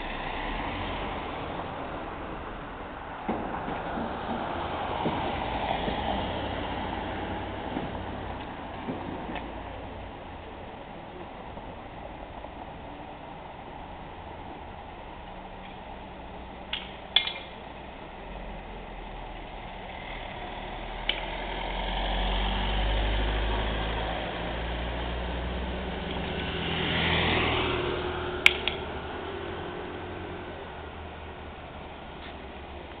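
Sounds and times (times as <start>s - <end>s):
tyres swishing on wet street: 0.0s - 33.0s
vehicle engine rumble: 0.0s - 33.0s
sharp clicks and knocks: 16.7s - 17.6s, 28.4s - 28.9s.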